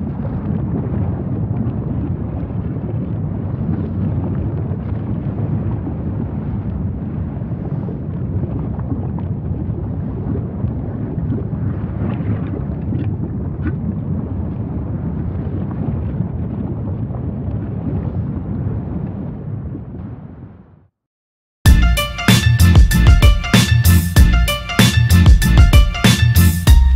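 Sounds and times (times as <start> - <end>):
lava eruption low rumble: 0.0 - 20.9.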